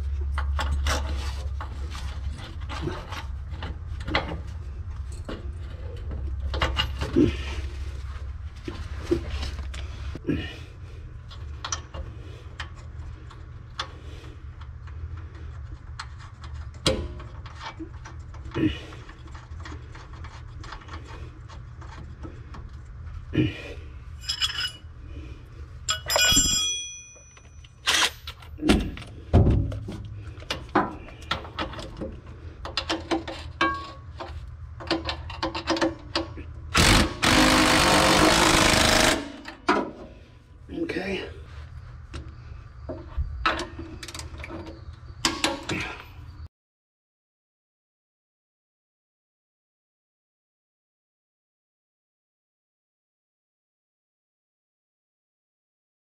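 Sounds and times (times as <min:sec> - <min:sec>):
metal tools clinking: 0:05.0 - 0:07.2, 0:24.2 - 0:24.9, 0:25.8 - 0:28.6.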